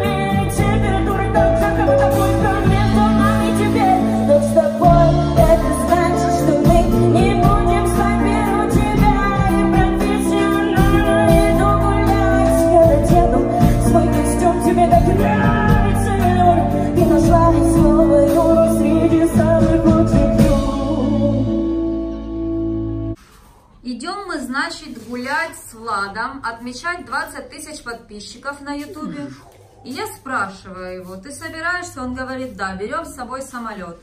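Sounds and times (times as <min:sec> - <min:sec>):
woman singing into microphone: 0:00.0 - 0:22.0
instrumental accompaniment: 0:00.0 - 0:23.2.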